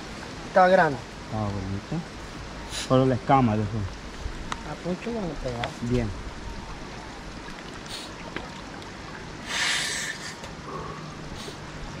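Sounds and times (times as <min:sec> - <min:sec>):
water sloshing around wading person: 0:06.6 - 0:12.0.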